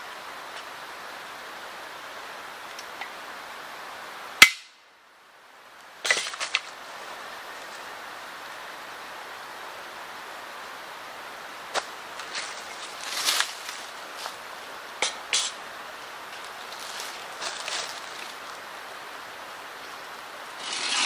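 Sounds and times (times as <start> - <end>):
stream rushing: 0.0 - 21.0
rustling in leaf litter: 11.8 - 21.0.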